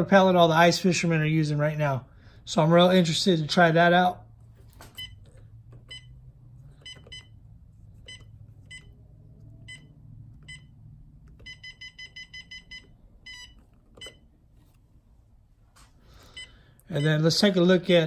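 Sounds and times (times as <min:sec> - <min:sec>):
fish finder key-press beeps: 0:11.4 - 0:14.2.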